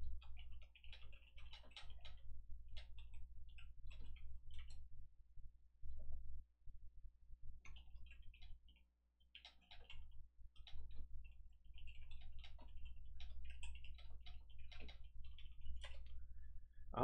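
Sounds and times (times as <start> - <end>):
keyboard typing clicks: 11.8 - 16.1.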